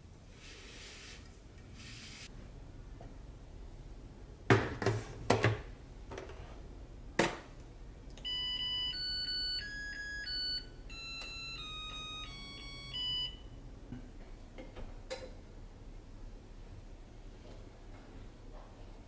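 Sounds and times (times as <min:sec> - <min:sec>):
rice cooker beeping melody: 0:08.2 - 0:13.5.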